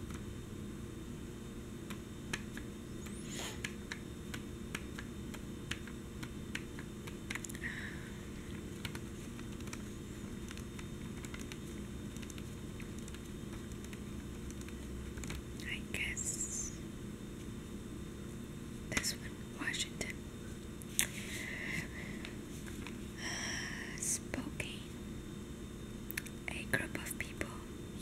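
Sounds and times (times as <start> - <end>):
fingertips tapping on newspaper: 1.8 - 2.7, 3.6 - 7.6, 8.6 - 15.4.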